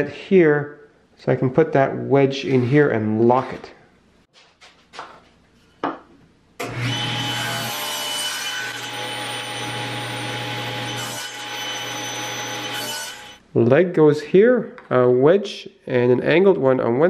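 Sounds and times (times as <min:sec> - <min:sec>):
saw blade cutting plywood: 0:06.6 - 0:13.4
table saw running: 0:06.6 - 0:13.4.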